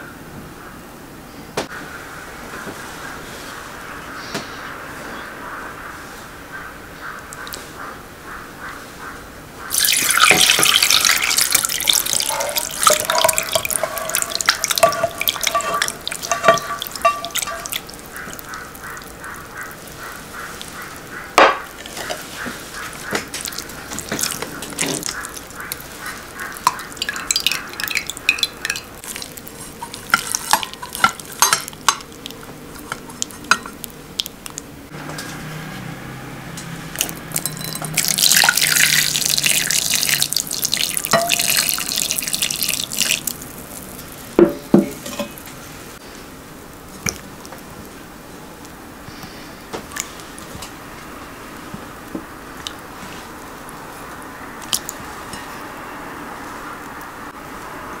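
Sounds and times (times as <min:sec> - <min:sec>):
liquid splashing through strainer: 0:09.7 - 0:34.6, 0:36.9 - 0:45.5
spatula scraping in strainer: 0:10.4 - 0:19.1.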